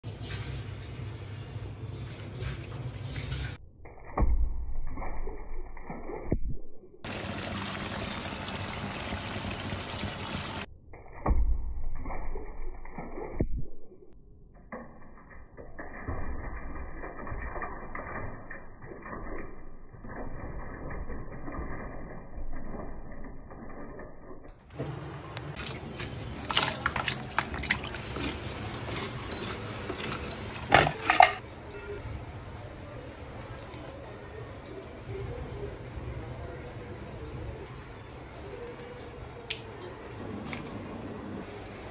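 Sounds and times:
running water: 0:07.1 - 0:10.7.

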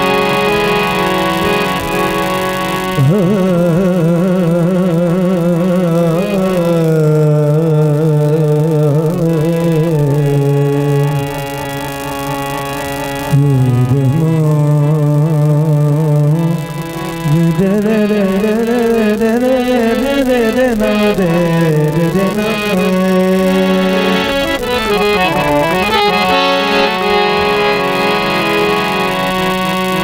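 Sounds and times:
harmonium: 0:00.0 - 0:30.0
man singing without words: 0:03.0 - 0:11.6, 0:13.3 - 0:28.1.

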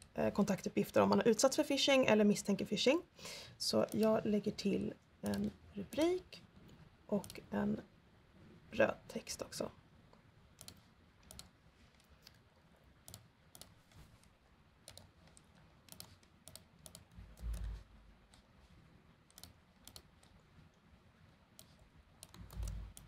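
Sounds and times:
keyboard typing: 0:03.8 - 0:04.2, 0:05.2 - 0:07.5, 0:10.5 - 0:12.4, 0:13.0 - 0:18.5, 0:19.3 - 0:20.5, 0:21.5 - 0:23.0
mouse clicks: 0:10.6 - 0:12.4, 0:14.8 - 0:18.4, 0:21.6 - 0:23.0.

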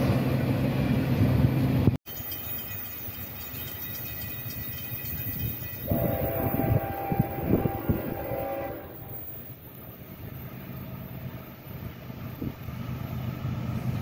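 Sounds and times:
locomotive horn blast: 0:05.8 - 0:09.4.

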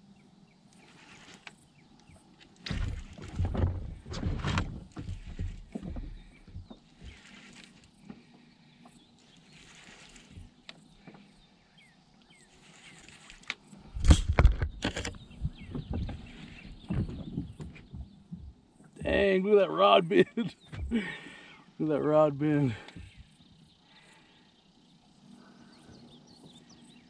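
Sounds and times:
fishing rod handling bumps in boat: 0:02.4 - 0:07.7.

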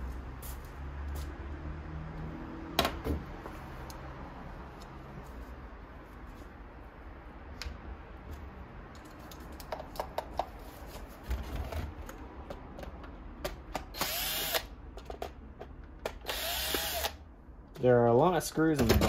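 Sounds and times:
cordless drill spinning: 0:13.9 - 0:14.7, 0:16.2 - 0:17.2.

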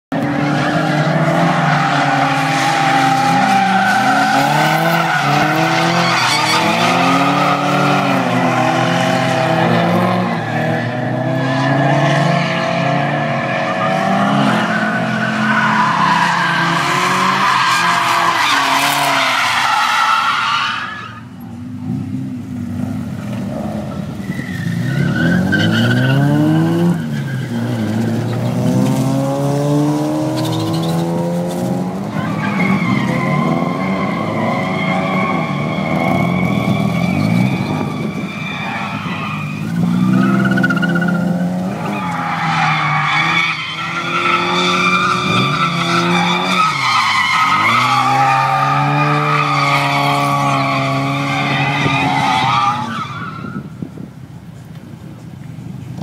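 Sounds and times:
car engines revving: 0:00.1 - 0:56.0
tyres squealing: 0:00.5 - 0:09.2, 0:13.8 - 0:21.2, 0:32.1 - 0:53.6.

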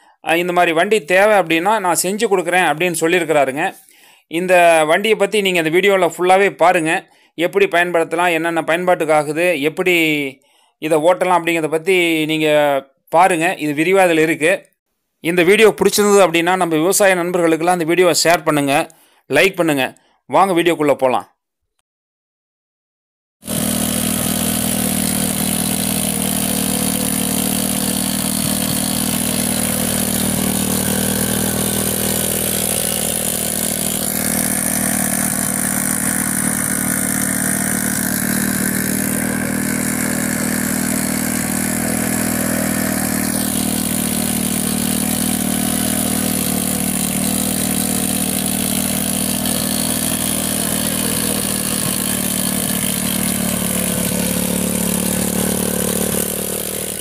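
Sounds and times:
tiller working dry soil: 0:01.1 - 0:03.8, 0:23.4 - 0:57.0
small motorcycle engine running: 0:23.4 - 0:57.0.

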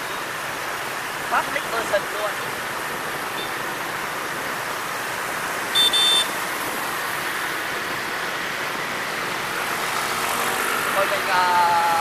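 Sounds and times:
motorbike and road traffic: 0:00.0 - 0:12.0
horn beeps: 0:05.7 - 0:06.3.

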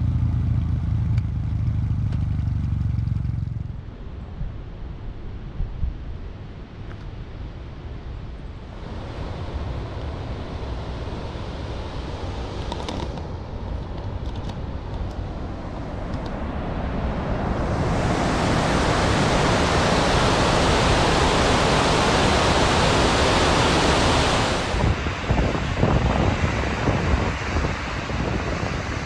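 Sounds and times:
water rushing over spillway: 0:15.4 - 0:29.0.

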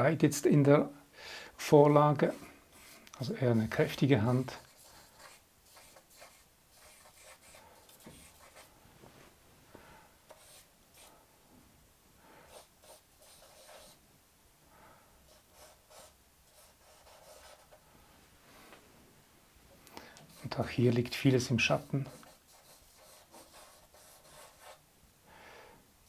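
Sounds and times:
charcoal scratching on paper: 0:02.3 - 0:03.8, 0:04.4 - 0:08.7, 0:12.5 - 0:14.0, 0:15.4 - 0:17.8, 0:21.7 - 0:24.8.

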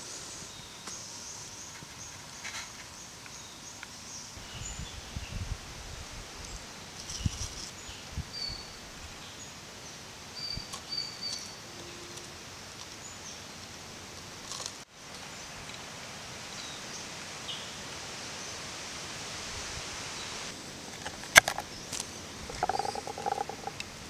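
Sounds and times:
background hiss: 0:00.0 - 0:24.0
high bird chirps: 0:22.5 - 0:23.8.

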